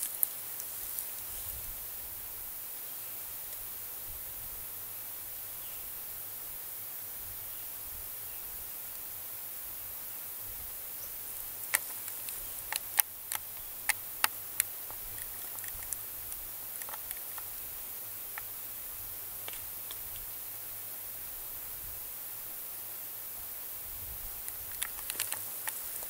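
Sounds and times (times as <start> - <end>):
steady high hiss: 0.0 - 26.0
sharp clicks and ticks: 11.6 - 17.5, 24.4 - 26.0.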